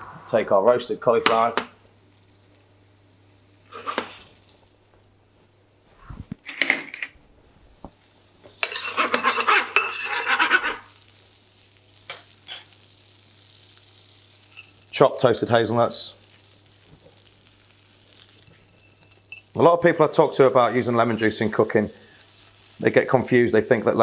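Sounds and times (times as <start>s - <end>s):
food rattling and sizzling in pan: 2.0s - 4.7s, 7.9s - 24.0s.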